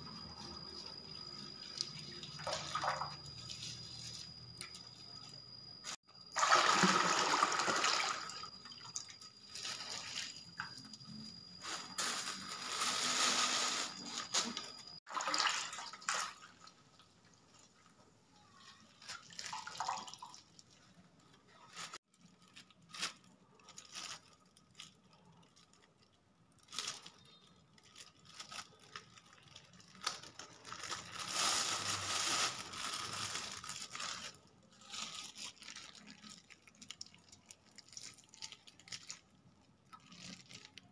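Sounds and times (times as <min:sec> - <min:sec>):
liquid pouring and splashing into wok: 0:06.3 - 0:08.9, 0:15.1 - 0:16.7
plastic bags crinkling: 0:11.6 - 0:15.0, 0:18.8 - 0:40.9.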